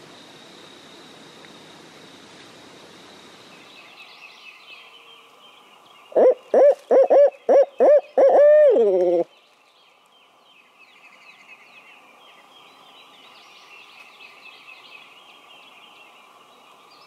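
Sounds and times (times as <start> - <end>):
background hiss: 0.0 - 17.0
owl hoots: 6.1 - 9.3.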